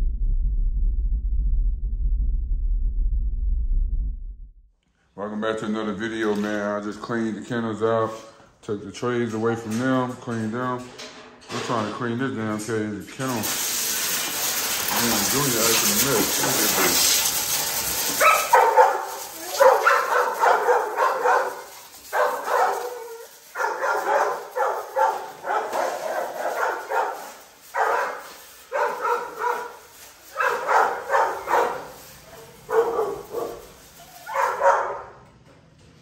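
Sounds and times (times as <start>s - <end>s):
hose spray hissing: 13.1s - 34.6s
dog barking and yelping: 16.7s - 35.1s.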